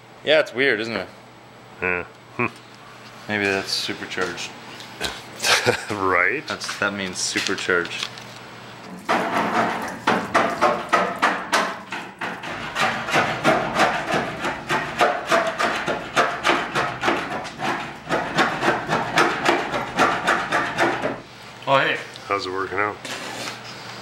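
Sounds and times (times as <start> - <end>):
hand scraper scraping steel: 11.9 - 21.2.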